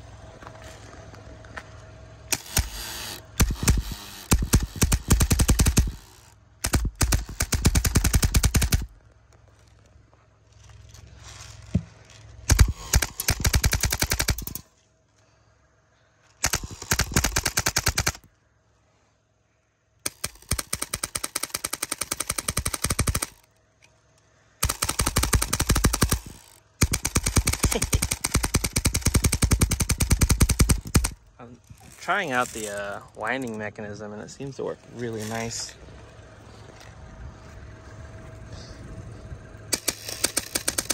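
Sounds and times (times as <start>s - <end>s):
airsoft gun firing bursts: 2.3s - 8.9s, 12.5s - 14.7s, 16.4s - 18.3s, 20.0s - 23.4s, 24.6s - 31.2s, 39.7s - 40.9s.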